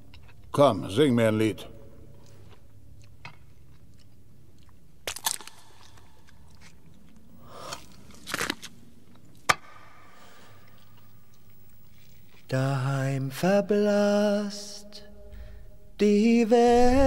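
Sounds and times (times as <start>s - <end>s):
low room hum: 0.0s - 17.0s
man chewing: 2.1s - 9.3s.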